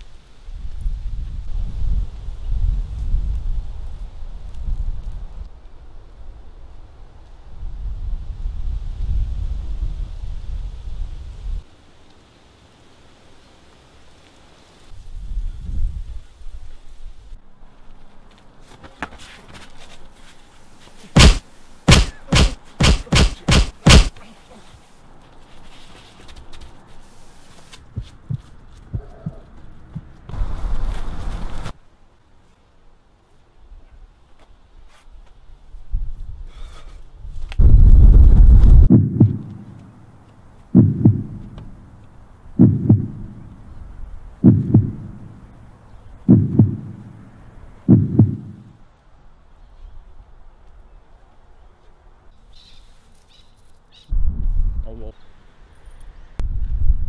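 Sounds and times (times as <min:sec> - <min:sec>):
heartbeat thumps: 0:21.2 - 0:24.1, 0:27.9 - 0:30.2, 0:37.6 - 0:39.9, 0:40.7 - 0:41.8, 0:42.6 - 0:43.6, 0:44.4 - 0:45.5, 0:46.2 - 0:47.2, 0:47.8 - 0:48.7
heavy punch thuds: 0:21.2 - 0:24.2, 0:38.4 - 0:39.6, 0:40.8 - 0:41.6, 0:42.6 - 0:43.3, 0:44.4 - 0:45.2, 0:46.3 - 0:47.1, 0:47.9 - 0:48.6.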